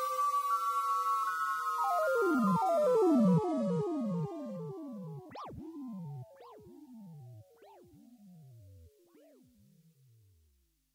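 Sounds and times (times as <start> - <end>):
synthesizer falling pitch sweeps: 1.8 - 10.2.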